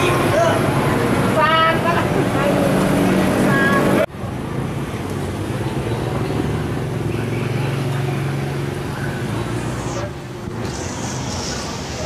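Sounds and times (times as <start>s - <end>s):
low motor drone: 7.2s - 12.0s.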